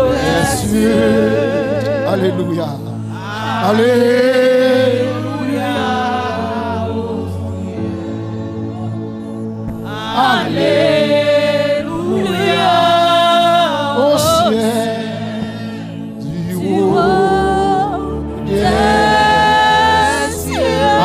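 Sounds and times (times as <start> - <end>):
women singing worship song: 0.0 - 21.0.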